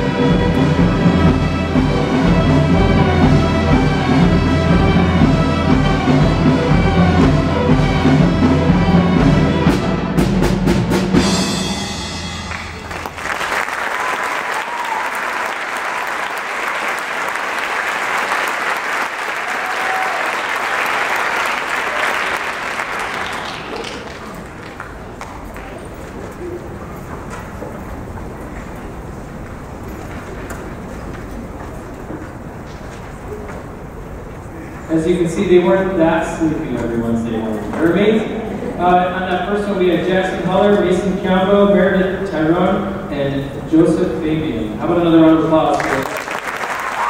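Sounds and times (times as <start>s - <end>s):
string orchestra playing: 0.0s - 10.8s
audience applause: 12.5s - 25.9s, 45.7s - 47.0s.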